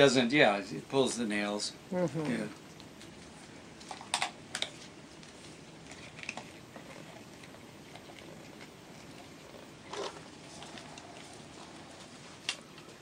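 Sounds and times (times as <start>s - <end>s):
soft scattered ticks: 4.6s - 13.0s.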